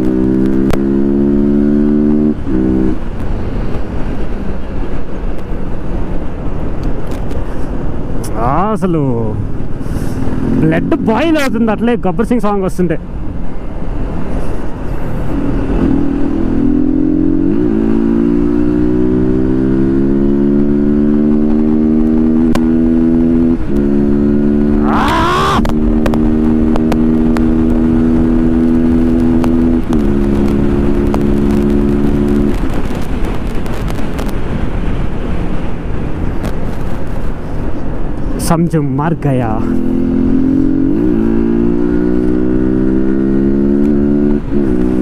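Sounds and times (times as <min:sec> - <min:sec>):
motorcycle engine accelerating: 0:00.0 - 0:04.4, 0:09.7 - 0:11.6, 0:15.3 - 0:34.3, 0:39.6 - 0:45.0
wind and road noise: 0:00.0 - 0:45.0.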